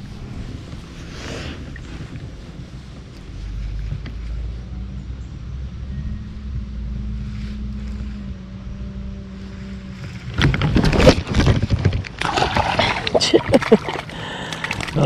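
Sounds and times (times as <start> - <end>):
wind on microphone: 0.0 - 4.4
loud splashing and knocking: 10.4 - 15.0.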